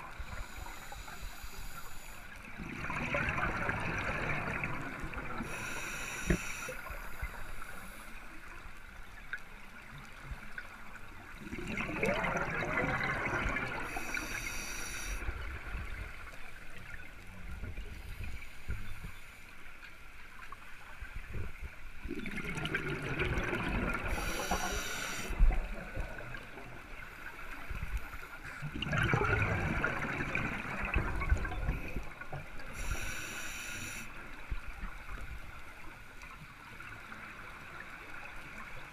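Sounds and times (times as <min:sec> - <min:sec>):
exhaled bubbles gurgling underwater: 0:02.4 - 0:19.0, 0:21.2 - 0:38.9
regulator valve hissing: 0:24.1 - 0:25.3, 0:32.8 - 0:34.1.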